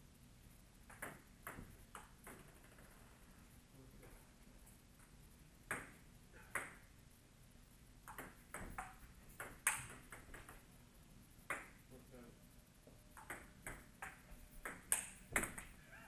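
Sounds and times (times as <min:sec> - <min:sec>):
table tennis ball clicks: 0:00.9 - 0:03.0, 0:05.7 - 0:06.9, 0:08.0 - 0:10.7, 0:11.4 - 0:11.8, 0:13.1 - 0:15.8.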